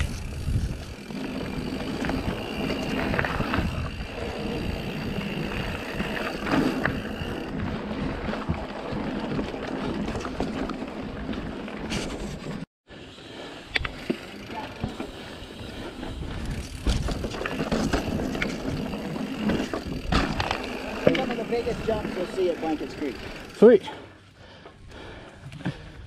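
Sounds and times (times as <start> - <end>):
wind buffeting microphone: 0.0 - 10.3
bike rattling and knocking: 0.0 - 12.6, 13.9 - 23.7
tyres rumbling on dirt: 14.0 - 23.7.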